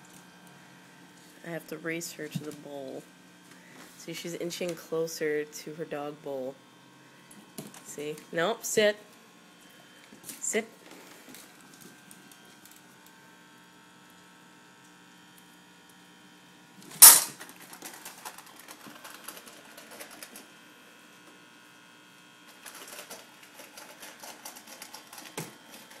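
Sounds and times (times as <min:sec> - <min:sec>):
dog crunching kibble: 0:17.3 - 0:20.5, 0:22.5 - 0:26.0.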